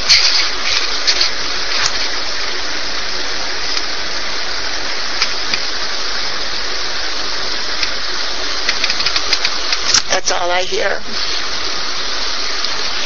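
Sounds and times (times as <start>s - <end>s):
steady rushing noise: 0.0s - 13.0s
faint clicks: 8.6s - 10.1s.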